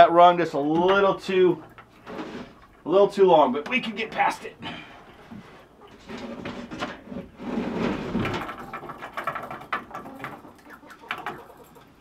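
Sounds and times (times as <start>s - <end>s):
wooden roost scraping and knocking: 0.7s - 2.7s, 5.1s - 11.7s.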